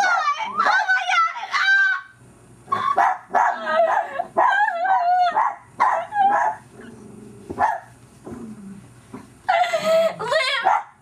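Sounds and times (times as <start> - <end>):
dog yapping and whining: 2.7 - 7.0.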